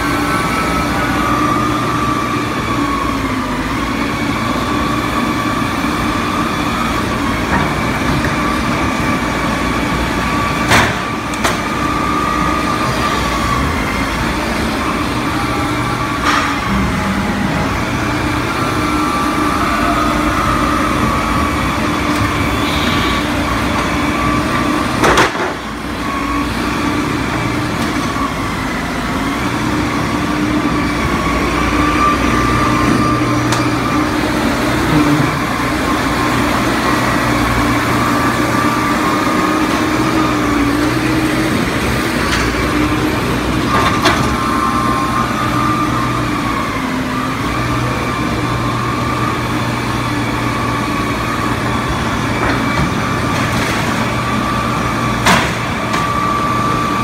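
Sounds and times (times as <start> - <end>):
forklift engine running: 0.0 - 57.0
higher hum: 34.7 - 35.8.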